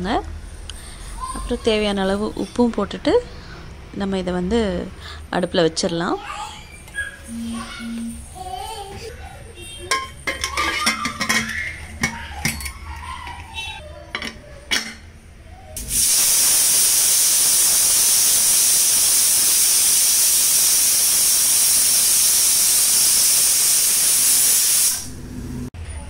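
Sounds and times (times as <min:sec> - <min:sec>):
steam hissing from pressure cooker: 0:15.8 - 0:25.1.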